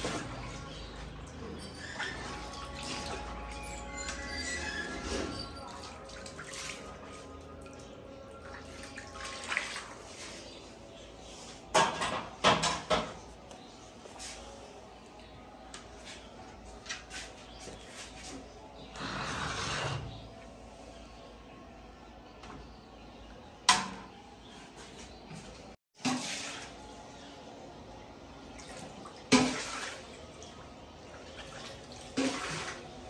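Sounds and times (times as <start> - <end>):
water dripping and splashing: 5.7 - 10.3, 28.6 - 33.0.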